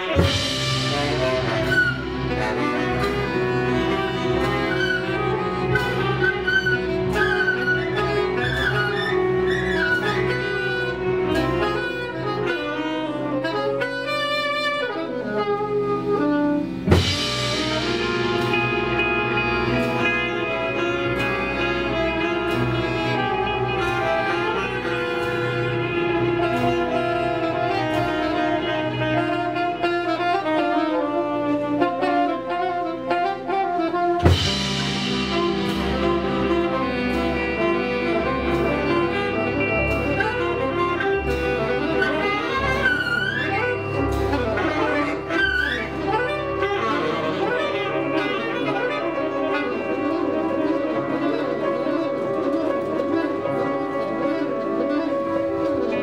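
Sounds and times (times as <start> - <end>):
saxophone and strings ensemble: 0.0 - 56.0
light percussion: 16.0 - 56.0.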